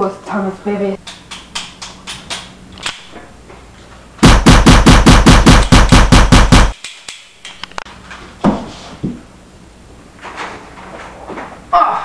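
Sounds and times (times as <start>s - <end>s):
machine-gun fire: 4.2s - 6.8s.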